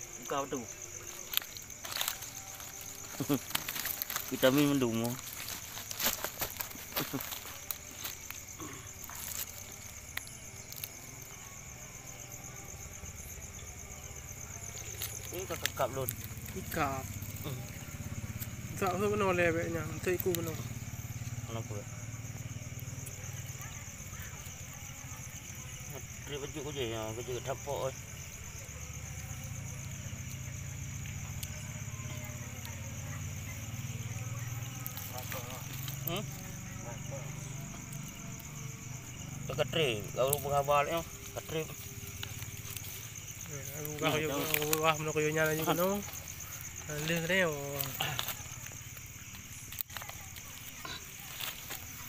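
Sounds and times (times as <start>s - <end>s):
night insects chirring: 0.0s - 52.0s
handling clicks and rustles: 0.8s - 10.2s.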